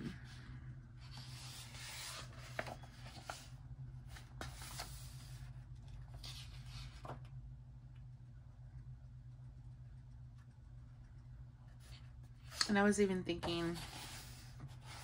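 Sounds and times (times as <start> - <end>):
paper pages rustling: 1.1 - 3.5, 4.1 - 7.2.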